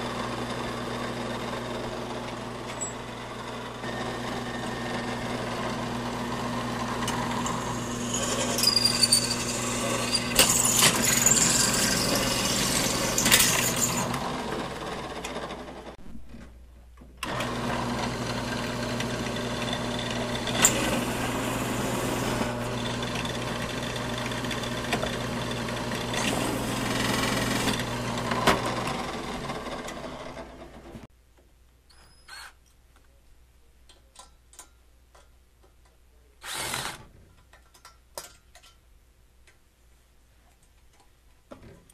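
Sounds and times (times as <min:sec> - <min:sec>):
drill press cutting metal: 0:02.2 - 0:15.6, 0:17.2 - 0:31.0, 0:36.4 - 0:37.1
sharp metal squeals: 0:07.4 - 0:12.4, 0:31.9 - 0:32.6.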